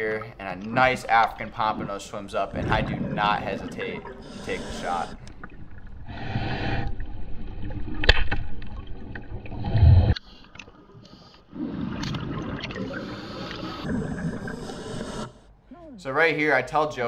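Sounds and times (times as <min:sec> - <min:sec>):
exhaled bubbles gurgling: 0:00.0 - 0:15.5
regulator inhale: 0:04.2 - 0:05.3, 0:12.9 - 0:15.5.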